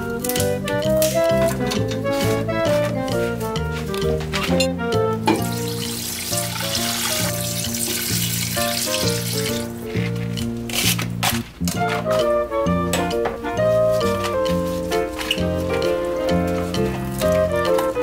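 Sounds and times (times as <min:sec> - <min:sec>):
background music: 0:00.0 - 0:18.0
water pouring into pot: 0:05.4 - 0:09.6.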